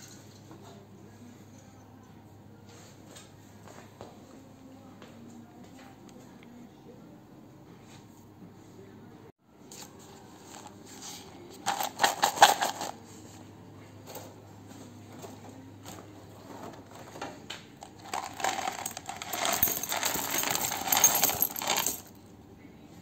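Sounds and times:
screws rattling in plastic cup: 11.7s - 12.9s, 17.9s - 22.1s
screws clattering into bin: 11.7s - 13.0s, 17.8s - 22.1s.

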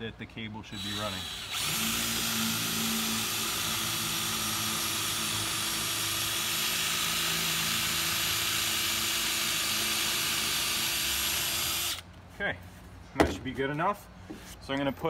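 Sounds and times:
power drill boring into wood: 0.8s - 12.0s.

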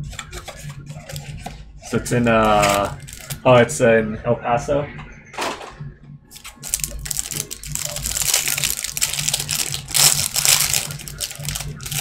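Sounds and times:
plastic wrapper crackling: 2.2s - 3.5s, 6.3s - 12.0s.

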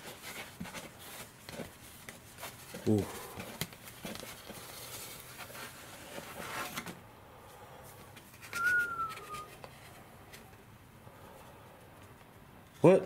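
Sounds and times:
foam sleeve crinkly rustling: 0.0s - 6.9s
short whistle-like tone: 8.5s - 9.6s.

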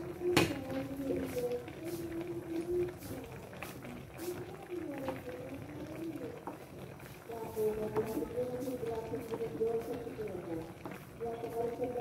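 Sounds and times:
faint voice: 0.0s - 6.5s
broth simmering and bubbling: 0.0s - 12.0s.

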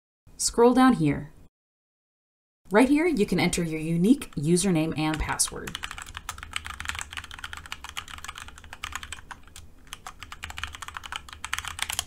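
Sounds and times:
low steady hum: 2.7s - 12.0s
fast typing on keyboard: 4.1s - 12.0s.

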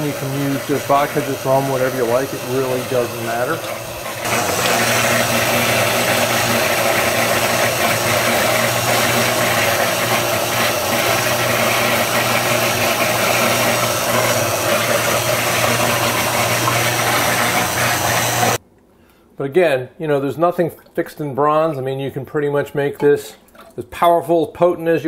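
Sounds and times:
blender motor running: 0.0s - 18.6s.

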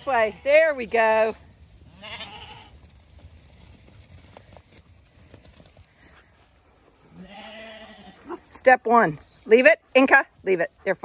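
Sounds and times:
lamb hooves pattering on grass: 0.0s - 11.0s
sheep bleat: 1.9s - 2.8s, 7.1s - 8.4s.

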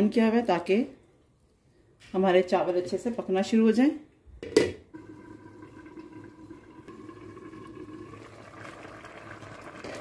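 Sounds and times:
stock bubbling in a pot: 4.8s - 10.0s.

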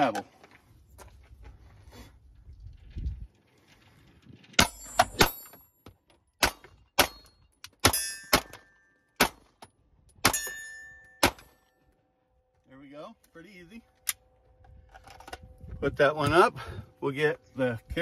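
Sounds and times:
pistol shots: 6.4s - 9.5s, 11.2s - 11.6s
steel target ringing: 7.0s - 9.1s, 10.2s - 11.7s.

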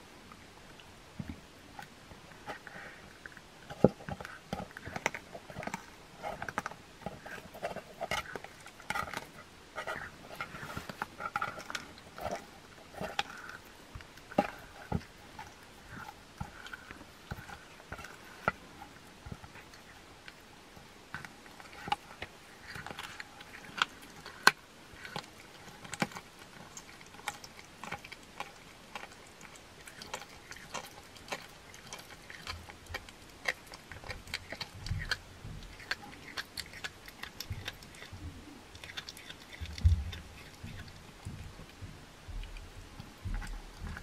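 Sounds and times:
cat chewing and licking: 0.2s - 44.0s
teeth clicking: 21.1s - 44.0s.

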